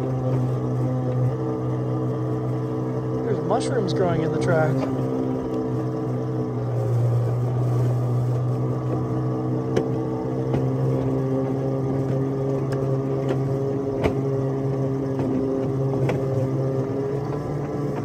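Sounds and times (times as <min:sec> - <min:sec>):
locomotive hum with buzz: 0:00.0 - 0:18.0
wheels clicking over rail joints: 0:08.3 - 0:18.0.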